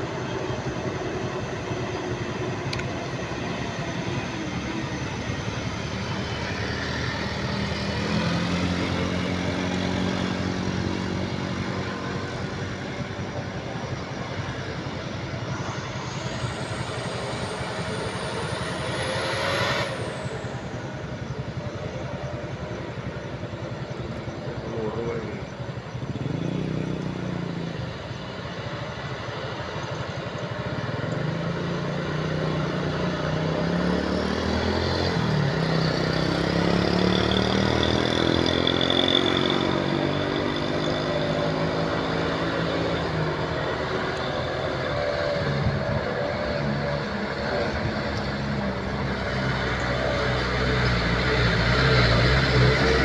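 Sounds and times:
high whine: 0.0s - 53.0s
truck engine passing: 3.0s - 21.6s, 30.9s - 53.0s.

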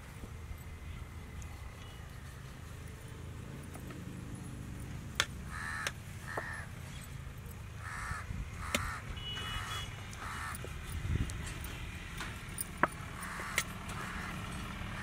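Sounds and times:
crow cawing: 5.5s - 6.7s, 7.8s - 10.6s, 13.2s - 14.4s.

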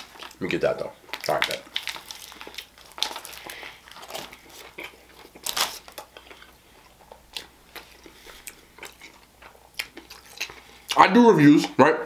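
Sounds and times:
paper wrapper crinkling: 0.0s - 6.3s
biting and chewing sandwich: 0.0s - 11.0s.

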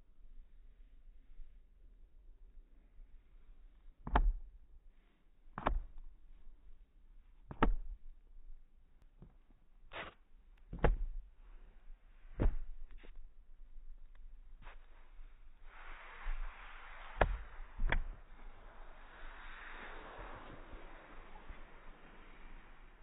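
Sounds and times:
faint outdoor hiss: 4.7s - 23.0s.

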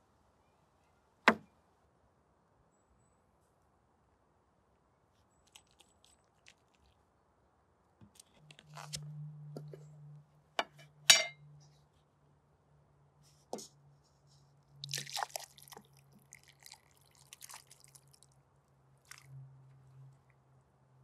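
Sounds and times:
glass clicks: 10.6s - 11.4s
food plopping wetly into bowl: 14.8s - 18.2s
drips and plops: 14.8s - 18.4s, 19.1s - 19.4s.

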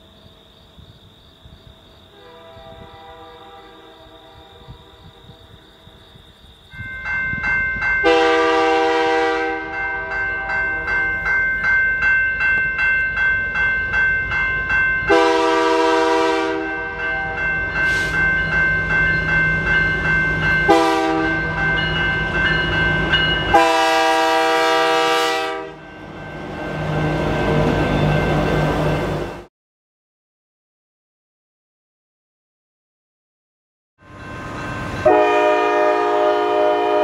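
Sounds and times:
locomotive air horn blasts: 2.1s - 5.3s, 8.0s - 10.6s, 15.1s - 18.2s, 20.7s - 21.4s, 23.5s - 25.8s, 35.0s - 37.0s.

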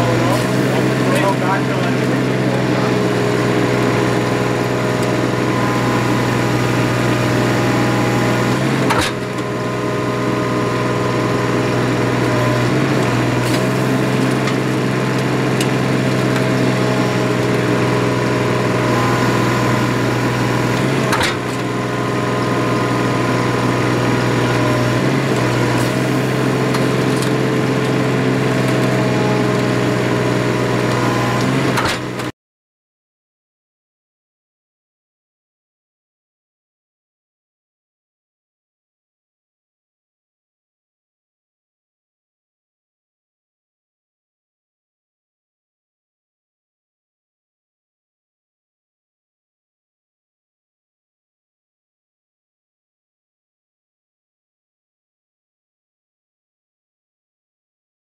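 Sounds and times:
hydraulic rig mechanical drone: 0.0s - 32.3s.

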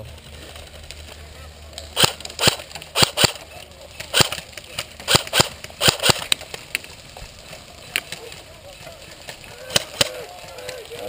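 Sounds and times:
airsoft rifle shots: 1.9s - 6.4s, 9.7s - 10.2s.

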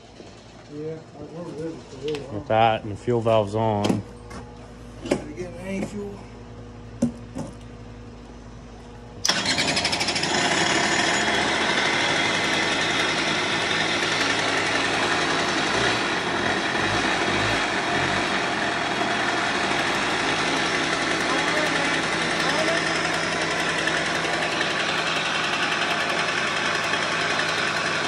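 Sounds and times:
two-stroke engine starting and running: 9.2s - 28.0s.

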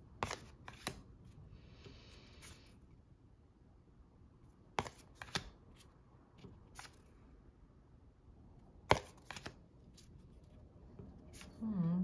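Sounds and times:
cards clicking and tapping: 0.2s - 1.1s, 4.7s - 5.6s, 8.8s - 9.6s.

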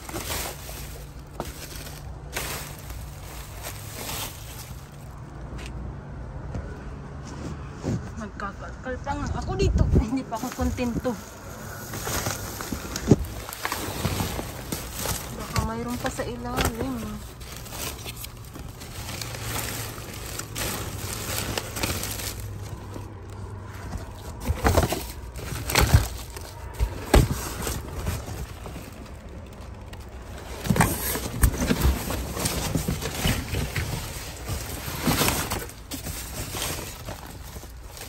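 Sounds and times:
plastic and cardboard rustling: 0.0s - 5.6s, 10.1s - 38.0s
sharp crackles and knocks: 11.8s - 38.0s.

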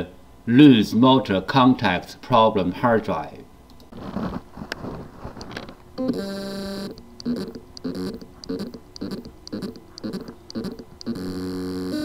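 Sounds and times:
hard drive motor buzzing: 6.0s - 12.0s
short buzzing pulses: 6.0s - 12.0s.

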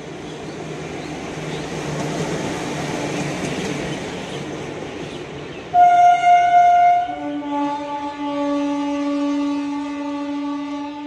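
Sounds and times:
train rumbling on rails: 0.0s - 11.0s
train horn: 5.7s - 11.0s.

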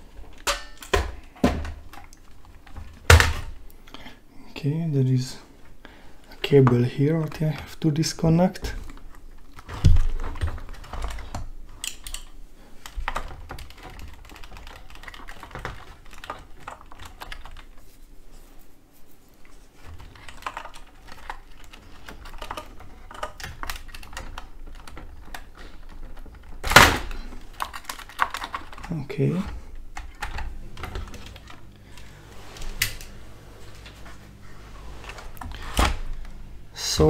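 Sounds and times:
plastic parts clicking and tapping: 8.7s - 17.8s, 19.8s - 32.1s.

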